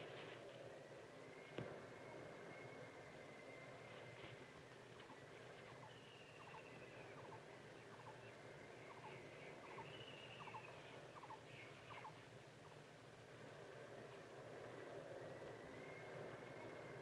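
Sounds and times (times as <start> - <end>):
bird chirping: 5.0 - 12.8.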